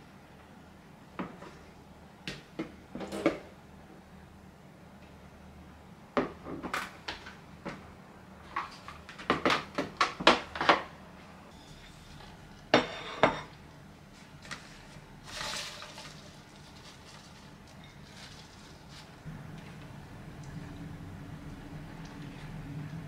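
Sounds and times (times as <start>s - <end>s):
kitchenware clattering: 12.7s - 13.6s
salad greens rustling: 14.1s - 19.8s.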